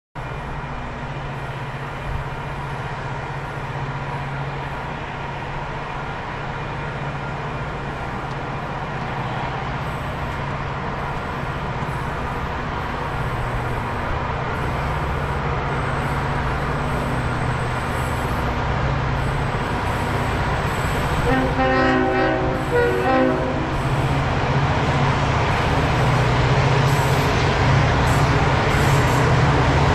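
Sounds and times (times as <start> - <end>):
locomotive engine rumble: 0.2 - 29.9
multi-tone air horn: 21.2 - 23.8.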